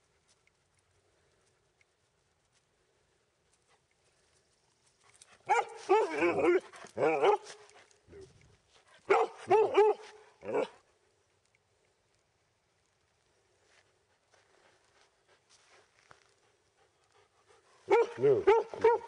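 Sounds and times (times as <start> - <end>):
dog barking: 5.5 - 7.5, 9.1 - 10.8, 17.9 - 19.0.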